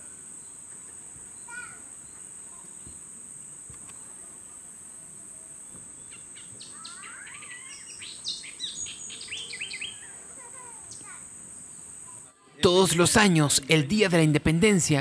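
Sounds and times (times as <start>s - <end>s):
high insect buzz: 0.0s - 12.3s
bird chirps and whistles: 6.1s - 10.1s.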